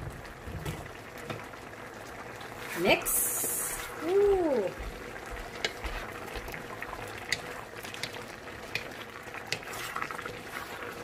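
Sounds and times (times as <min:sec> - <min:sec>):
coconut milk simmering and bubbling: 0:00.0 - 0:11.0
wooden spatula stirring in wok: 0:02.2 - 0:11.0
spatula clicking against pan: 0:07.3 - 0:08.9.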